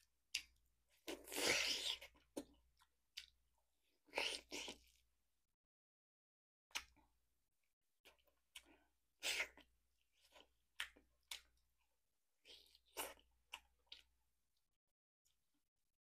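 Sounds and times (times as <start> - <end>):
person chewing and sucking meat: 0.3 - 5.1, 8.0 - 14.2.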